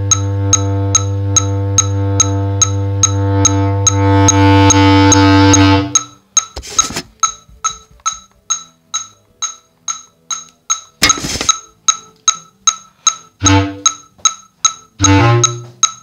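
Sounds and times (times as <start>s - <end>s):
bass clarinet notes: 0.0s - 6.1s, 13.4s - 14.0s, 15.0s - 15.8s
electronic metronome clicking: 0.0s - 16.0s.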